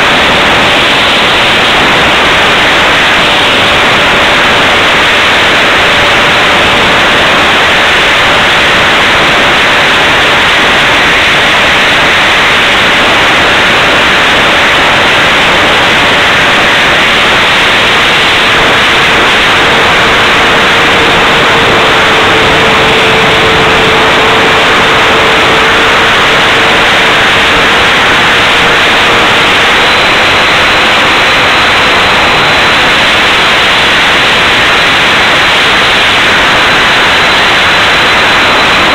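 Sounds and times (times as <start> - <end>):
faint steady whine: 0.0 - 38.9
fan and airflow rushing hiss: 0.0 - 38.9.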